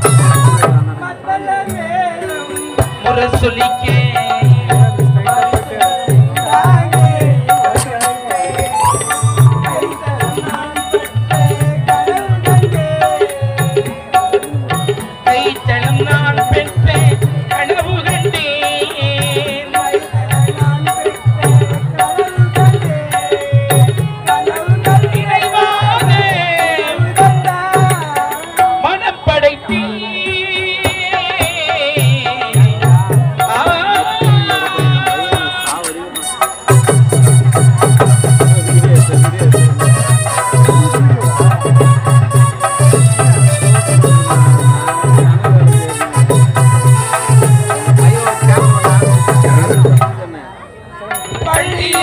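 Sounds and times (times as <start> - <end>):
drum beat: 0.0 - 1.0, 2.8 - 28.9, 30.7 - 50.2
wavering melody: 0.0 - 52.0.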